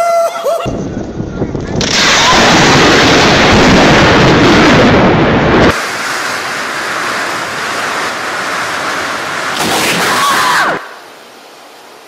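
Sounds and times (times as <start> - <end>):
wind: 0.0 - 12.0
heavy rain: 0.8 - 12.0.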